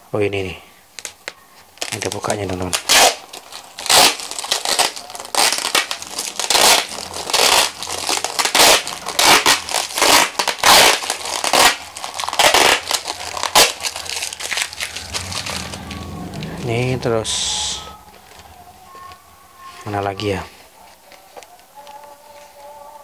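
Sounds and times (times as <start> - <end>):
plastic wrap crinkling and ripping: 0.9 - 16.6.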